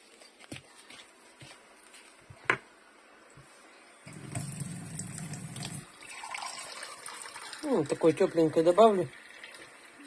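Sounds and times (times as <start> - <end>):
water running into a glass: 4.1 - 10.0.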